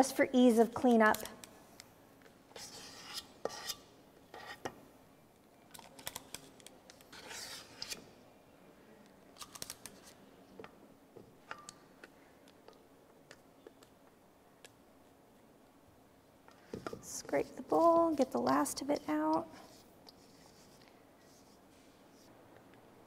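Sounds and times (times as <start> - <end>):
metal scoop scraping bowl: 7.1 - 8.0.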